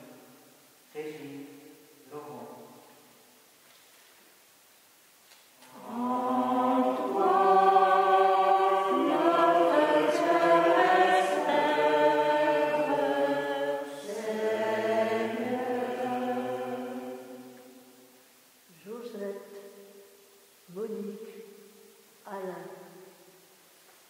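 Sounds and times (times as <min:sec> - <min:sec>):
voices singing a slow chant: 0:05.6 - 0:18.2.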